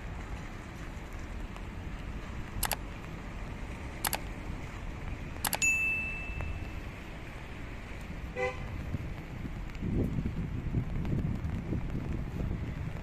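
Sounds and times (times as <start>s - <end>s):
outdoor street background: 0.0s - 13.0s
bell ding: 5.5s - 6.6s.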